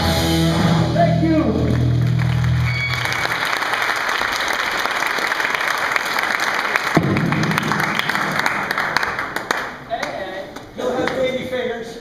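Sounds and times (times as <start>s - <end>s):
live band song: 0.0s - 3.2s
man's voice: 0.8s - 1.8s
audience clapping: 1.5s - 11.4s.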